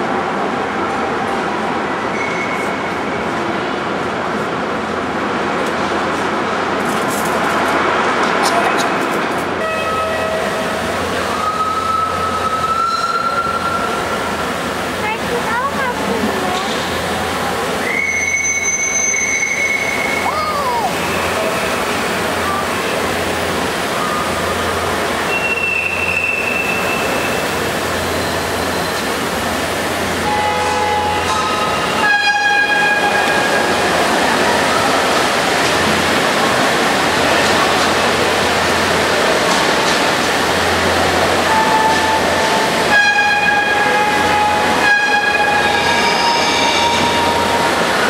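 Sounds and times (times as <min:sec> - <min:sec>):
model steam locomotive whistles: 0:11.3 - 0:14.0, 0:17.8 - 0:20.4, 0:25.2 - 0:27.5, 0:30.2 - 0:33.4, 0:42.9 - 0:47.7.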